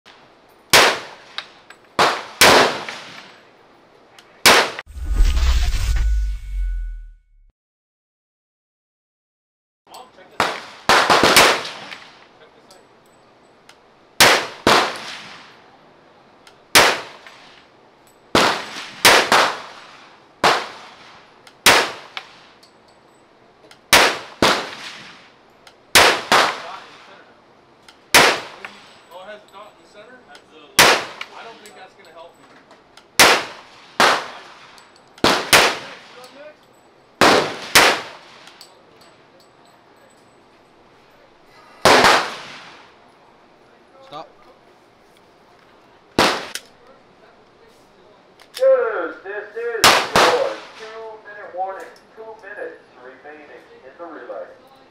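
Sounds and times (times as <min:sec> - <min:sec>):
rifle gunshots: 0:02.0 - 0:03.2, 0:10.4 - 0:12.0, 0:14.2 - 0:15.3, 0:18.4 - 0:19.8, 0:23.9 - 0:25.0, 0:25.9 - 0:27.0, 0:28.1 - 0:28.6, 0:30.8 - 0:31.2, 0:33.2 - 0:34.4, 0:35.2 - 0:36.1, 0:37.2 - 0:38.3, 0:41.8 - 0:42.6, 0:46.2 - 0:46.6, 0:49.8 - 0:51.0.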